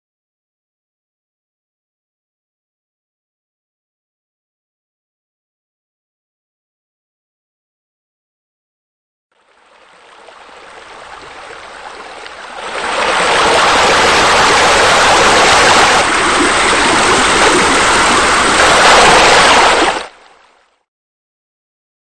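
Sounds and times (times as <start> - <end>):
waterfall splashing into pool: 10.0 - 20.6.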